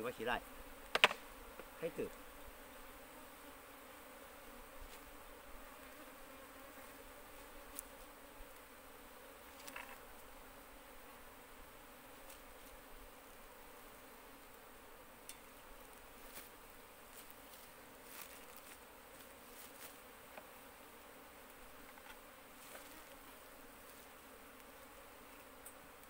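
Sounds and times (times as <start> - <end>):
bees buzzing: 0.0 - 26.0
wooden board clicks: 0.9 - 1.2.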